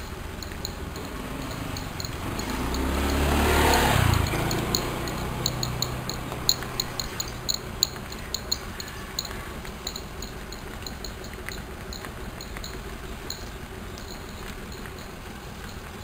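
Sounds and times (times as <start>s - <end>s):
cattle hooves on paved road: 0.0s - 16.0s.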